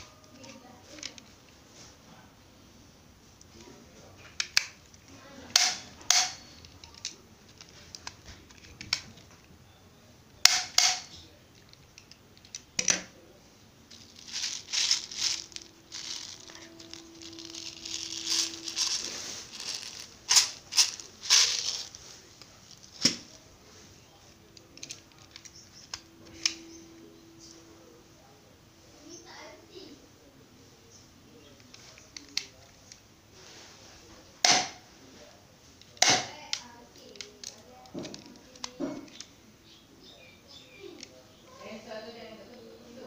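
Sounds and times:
plastic toy gun clicks and snaps: 5.5s - 6.4s, 10.4s - 11.1s, 35.9s - 39.3s
plastic bottle of pellets rattling: 13.9s - 22.0s.

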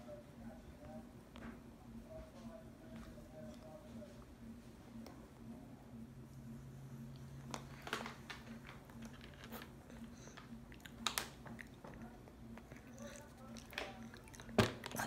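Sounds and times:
low steady hum: 0.0s - 15.0s
toddler chewing crunchy snack: 7.5s - 15.0s.

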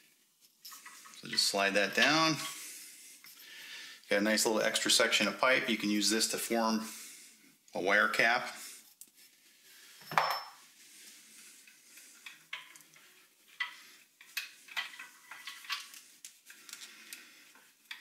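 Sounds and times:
metal tube clinking and scraping: 0.6s - 2.6s, 11.6s - 16.9s.

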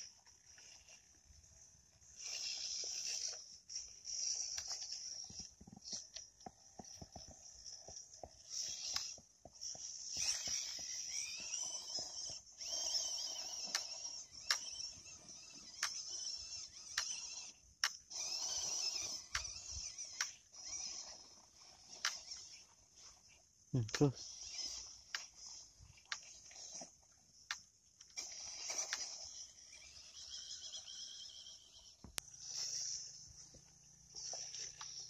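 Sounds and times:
electric motor and gears whining: 0.0s - 35.0s
sharp clicks: 12.2s - 20.4s.

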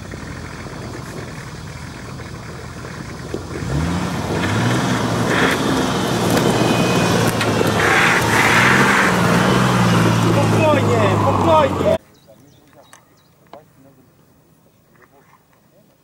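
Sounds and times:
off-road vehicle engine under load: 0.0s - 14.1s
short rushing noises: 4.4s - 11.9s.

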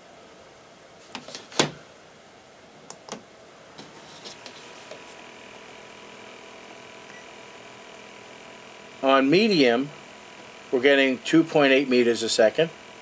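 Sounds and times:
fan motor humming: 2.9s - 13.0s.

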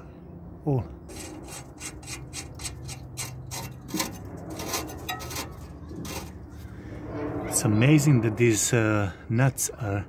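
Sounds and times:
nut scraping on threaded stud: 1.1s - 6.5s.

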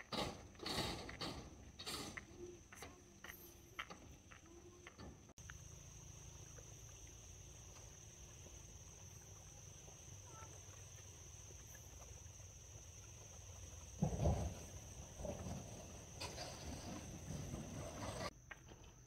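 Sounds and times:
insect chirring: 5.4s - 17.4s.

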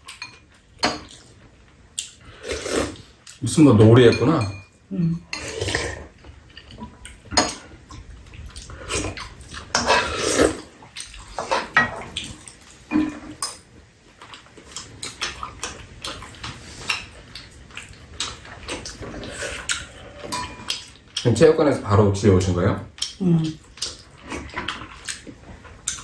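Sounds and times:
soup sipping: 2.3s - 3.1s
spoons clinking against bowls: 4.0s - 5.5s, 12.9s - 13.6s, 20.2s - 20.8s.

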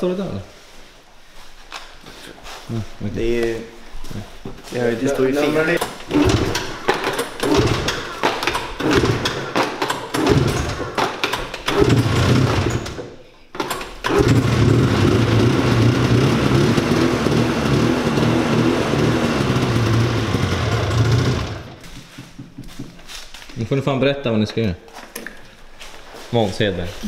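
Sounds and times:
snowmobile engine starting: 6.1s - 6.8s, 7.4s - 8.1s, 8.8s - 10.8s, 11.7s - 13.0s, 14.0s - 21.8s.

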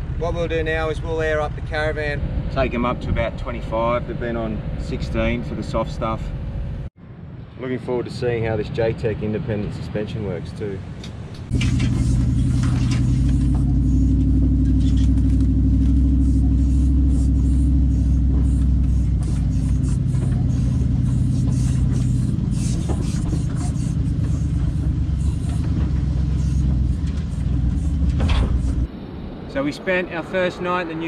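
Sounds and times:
caravan rumbling over sandy track: 11.4s - 28.9s.

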